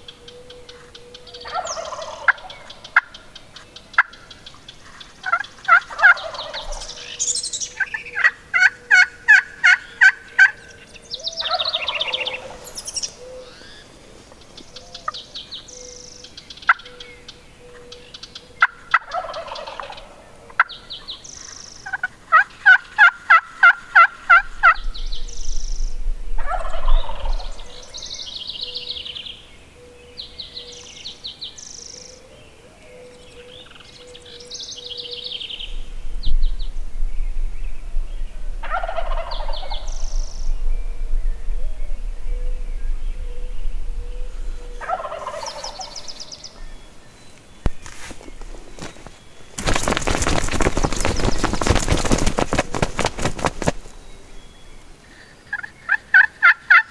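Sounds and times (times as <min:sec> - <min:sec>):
songbirds chirping: 0:00.0 - 0:56.9
wild turkey gobbling: 0:00.7 - 0:03.2, 0:04.0 - 0:04.2, 0:04.8 - 0:07.1, 0:07.8 - 0:10.7, 0:11.4 - 0:13.8, 0:18.6 - 0:20.7, 0:21.8 - 0:24.8, 0:26.4 - 0:27.6, 0:38.6 - 0:39.9, 0:44.6 - 0:46.1, 0:55.5 - 0:56.9.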